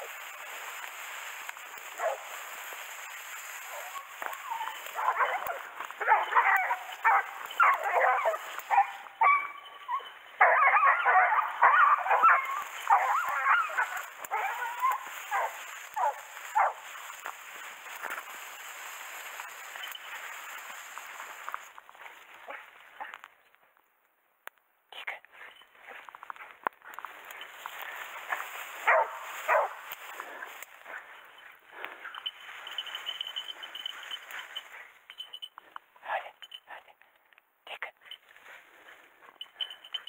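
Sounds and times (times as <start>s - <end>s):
hounds barking: 0.0s - 21.6s, 27.2s - 35.0s.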